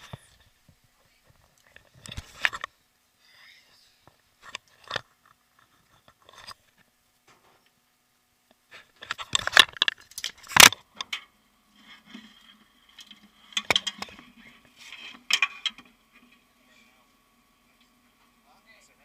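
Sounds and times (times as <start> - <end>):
faint steady hum: 0.0 - 19.0
camera handling clicks and rattles: 9.0 - 11.2, 13.0 - 14.3.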